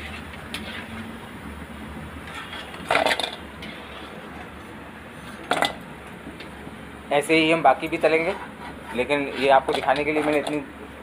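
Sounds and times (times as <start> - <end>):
clattering: 2.3 - 3.4.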